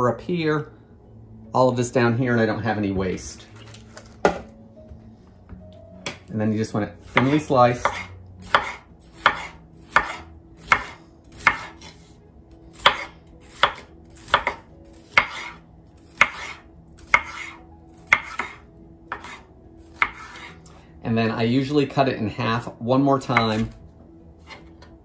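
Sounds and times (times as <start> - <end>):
knife striking cutting board: 3.6 - 4.5, 7.1 - 12.0, 12.7 - 19.4, 20.0 - 20.5.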